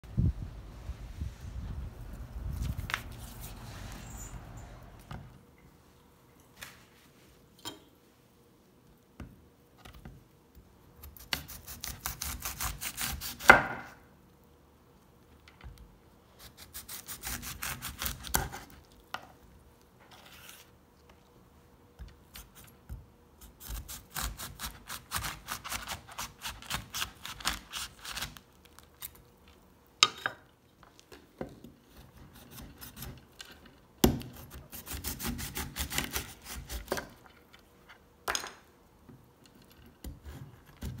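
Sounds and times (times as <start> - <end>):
knife sawing through rind: 16.5 - 18.6.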